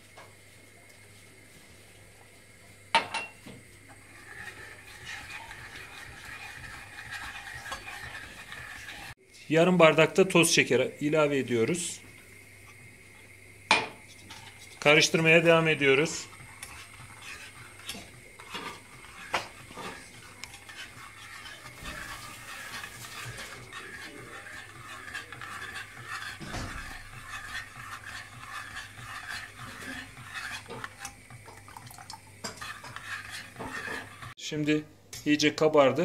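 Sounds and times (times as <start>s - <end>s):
metal spoon scraping a pot: 4.0s - 9.2s, 14.1s - 34.4s.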